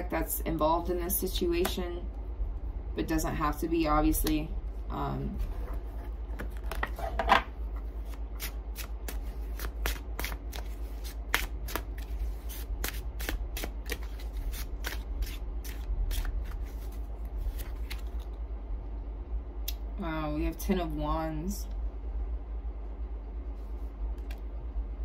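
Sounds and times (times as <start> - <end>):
low steady hum: 0.0 - 25.0
cards being shuffled: 5.8 - 18.4.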